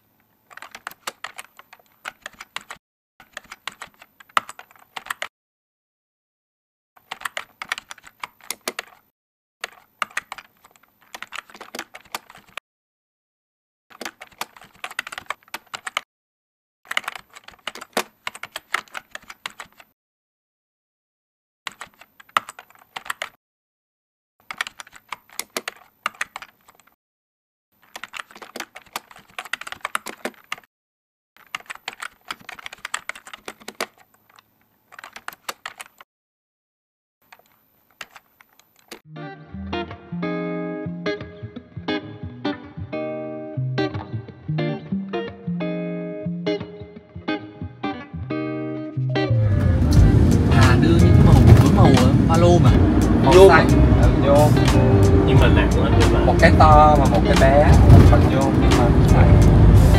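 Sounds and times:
computer keyboard typing: 0:00.5 - 0:05.3, 0:07.0 - 0:09.0, 0:09.6 - 0:12.6, 0:13.9 - 0:16.1, 0:16.9 - 0:20.0, 0:21.7 - 0:23.4, 0:24.4 - 0:27.0, 0:27.8 - 0:30.7, 0:31.4 - 0:36.1, 0:37.3 - 0:39.0.

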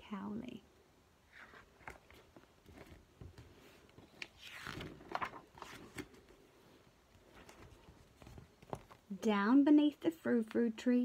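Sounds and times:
paper pages rustling: 0:01.3 - 0:09.1.

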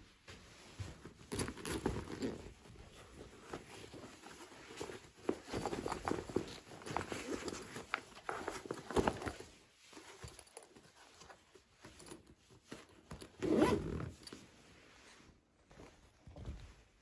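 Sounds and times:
bag rustling and clicking: 0:00.8 - 0:14.5
backpack zipper: 0:01.3 - 0:02.4, 0:13.4 - 0:14.4.

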